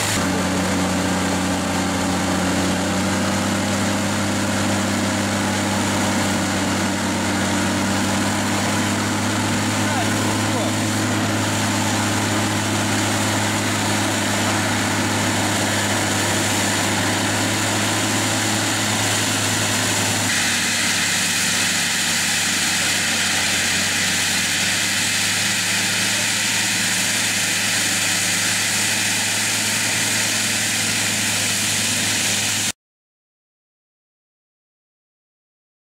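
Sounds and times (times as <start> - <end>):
mulcher rotor rushing: 0.0 - 32.7
tractor engine drone: 0.0 - 32.7.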